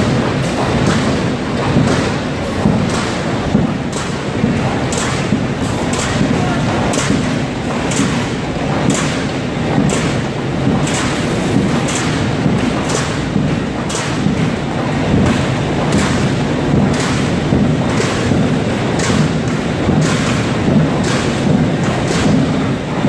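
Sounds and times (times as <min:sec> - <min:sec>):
printing machine rumbling: 0:00.0 - 0:23.0
sheets slapping through machine: 0:00.0 - 0:23.0.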